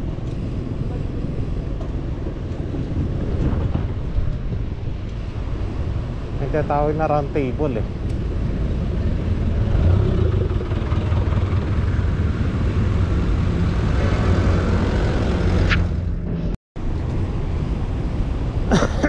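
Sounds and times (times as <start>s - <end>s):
road traffic: 0.0s - 19.0s
wind on microphone: 7.9s - 15.8s.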